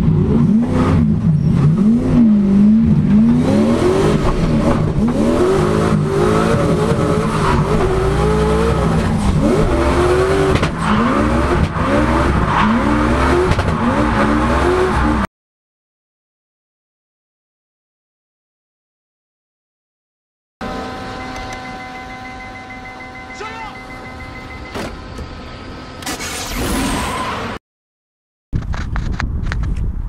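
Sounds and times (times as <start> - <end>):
car engine revving: 0.0 - 15.3.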